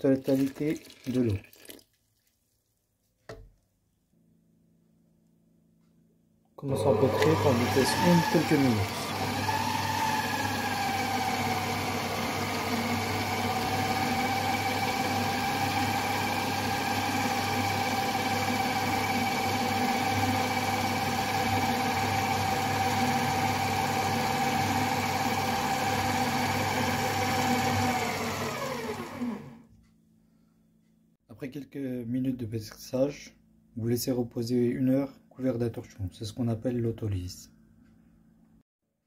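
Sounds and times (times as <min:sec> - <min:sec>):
stand mixer motor whine: 0:06.6 - 0:29.6.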